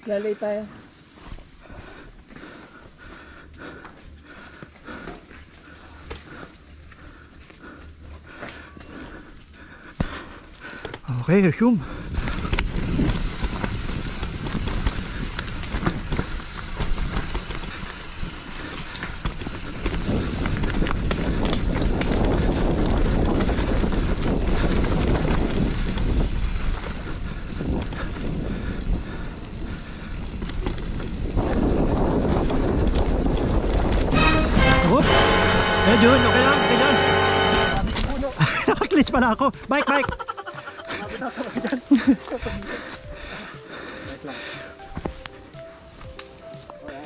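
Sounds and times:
bike tyres on dirt: 0.0 - 47.0
bike rattling and knocking: 10.0 - 34.1
wind on microphone: 11.9 - 35.8.

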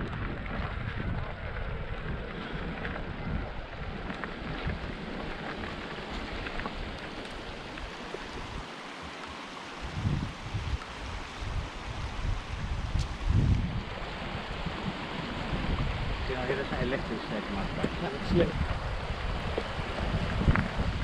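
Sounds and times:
wind buffeting microphone: 0.0 - 21.0
steady rushing hiss: 3.4 - 21.0.

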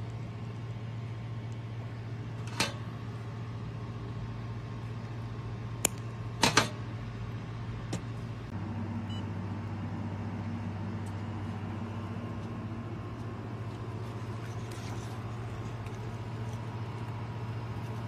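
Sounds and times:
laser welding machine humming: 0.0 - 18.0
wire cutters snipping: 5.8 - 6.7.

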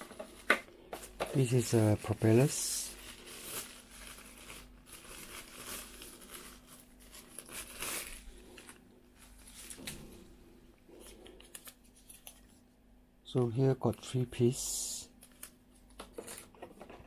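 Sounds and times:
plastic wrapping crinkling: 0.0 - 12.6.

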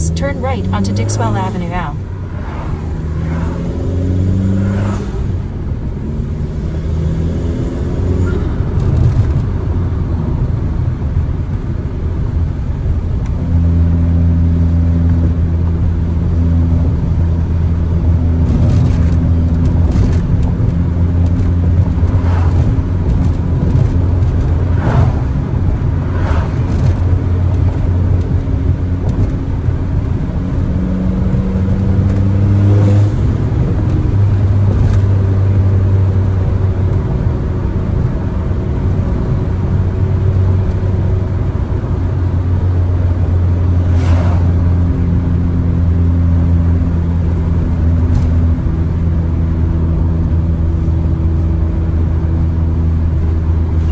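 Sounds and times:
car engine and exhaust droning: 0.0 - 53.9.

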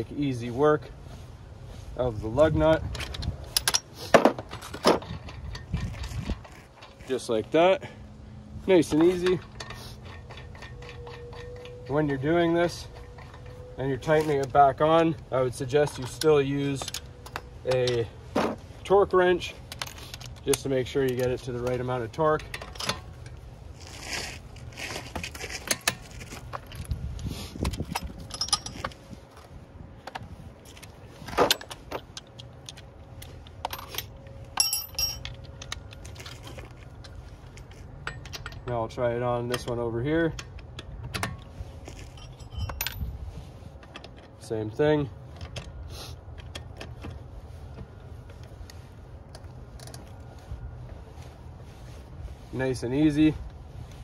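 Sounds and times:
metal tools clinking: 2.4 - 7.6, 8.7 - 18.6, 19.4 - 23.4, 27.6 - 29.0, 30.7 - 45.8
light metal clicks and clinks: 15.7 - 18.1, 27.7 - 29.0, 31.5 - 43.1.

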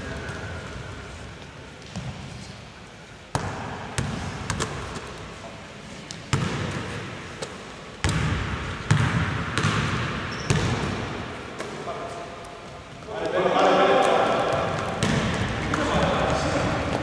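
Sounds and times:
basketball bouncing on hardwood floor: 8.0 - 10.8, 14.7 - 15.6.

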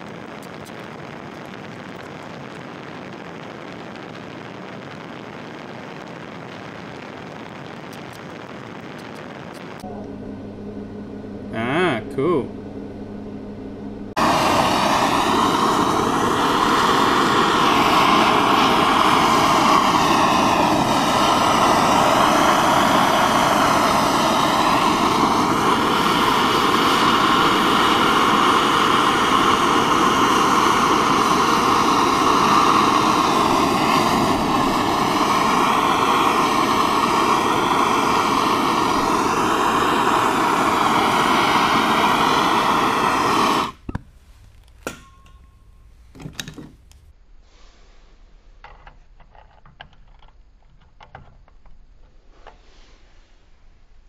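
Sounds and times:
gas torch flame hissing: 0.0 - 9.8, 14.1 - 47.1.

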